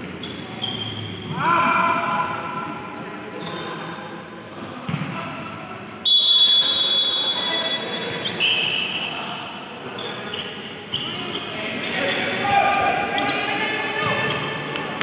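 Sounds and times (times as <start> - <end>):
shoe squeaks on floor: 0.1 - 1.3, 3.4 - 3.8, 6.9 - 9.0, 10.0 - 12.4.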